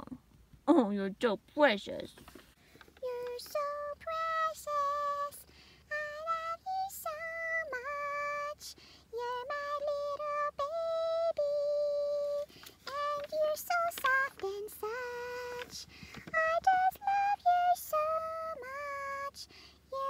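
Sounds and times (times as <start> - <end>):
woman singing wordless tune: 3.0 - 20.0.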